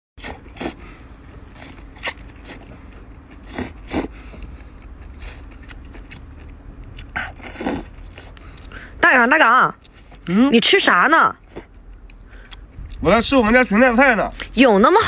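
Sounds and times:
person slurping: 0.2s - 0.9s, 3.4s - 4.2s, 7.0s - 8.4s
wet chewing: 0.2s - 9.0s, 9.6s - 10.4s, 11.3s - 13.0s.

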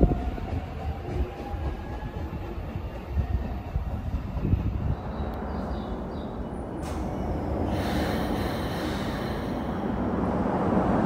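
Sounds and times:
electric train low rumble: 0.0s - 11.0s
hissing rush: 6.8s - 10.6s.

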